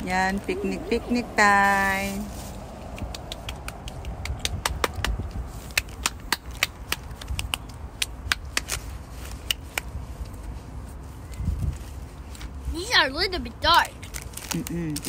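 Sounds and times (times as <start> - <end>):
wind rumble on microphone: 0.0 - 12.8
child clapping: 2.9 - 8.6.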